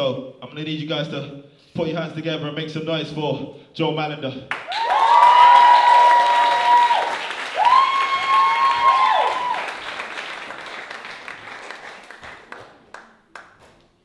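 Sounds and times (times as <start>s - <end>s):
audience applauding: 4.5s - 13.7s
audience cheering: 4.7s - 12.2s.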